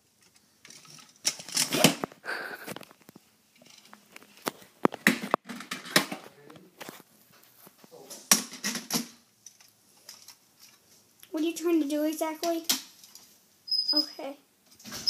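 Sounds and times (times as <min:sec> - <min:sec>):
quiet rustling: 0:00.0 - 0:05.4, 0:06.1 - 0:08.3, 0:09.4 - 0:11.3
plastic toy knocking and clattering: 0:04.9 - 0:06.2, 0:08.3 - 0:09.2.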